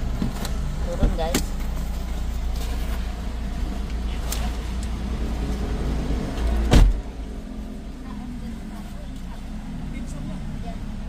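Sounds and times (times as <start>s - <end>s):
car engine idling: 0.0s - 11.0s
car door shutting thud: 6.6s - 7.0s.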